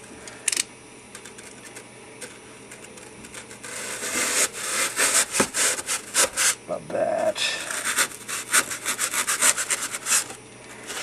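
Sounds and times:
knife cutting foam: 3.4s - 6.6s, 7.6s - 11.0s.

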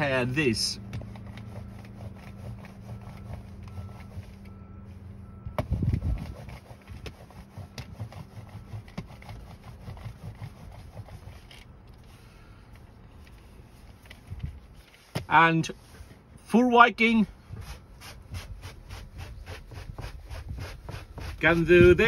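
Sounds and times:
lint roller crackling on carpet: 0.5s - 4.6s, 17.6s - 22.0s.

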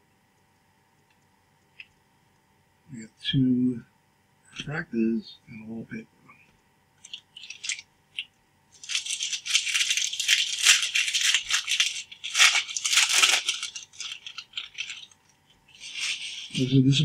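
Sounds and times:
plastic wrapper crinkling: 7.0s - 16.8s.

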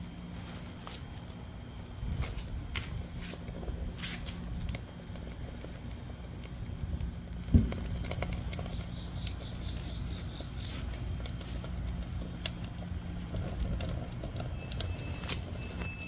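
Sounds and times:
kindling crackling: 0.0s - 16.0s
low steady hum: 0.0s - 16.0s.

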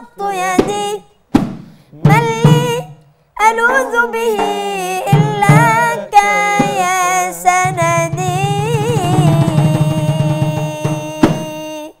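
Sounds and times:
voices singing devotional chant: 1.9s - 11.5s.

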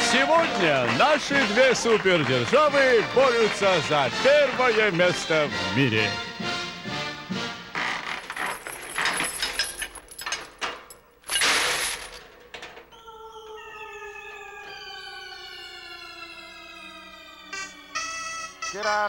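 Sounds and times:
metal clattering and crashing: 8.3s - 12.8s
long falling siren-like tone: 12.9s - 19.0s.

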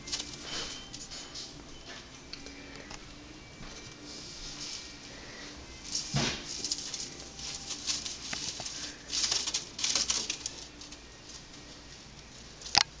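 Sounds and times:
rodent scratching in bedding: 5.8s - 11.0s.

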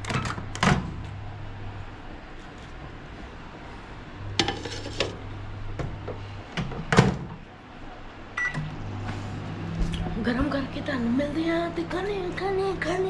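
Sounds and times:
microwave oven humming: 0.0s - 13.0s
keypad beep: 8.4s - 8.7s.

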